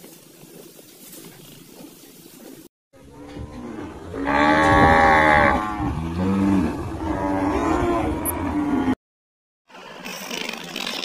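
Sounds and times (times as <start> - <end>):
cattle mooing: 3.0 - 9.0.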